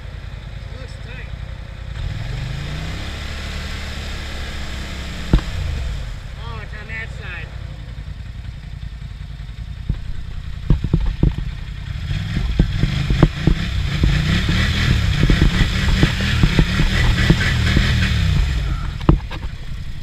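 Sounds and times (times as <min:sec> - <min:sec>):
atv engine revving: 0:00.0 - 0:20.0
sharp knocks: 0:05.2 - 0:05.9, 0:09.8 - 0:11.7, 0:12.3 - 0:19.5.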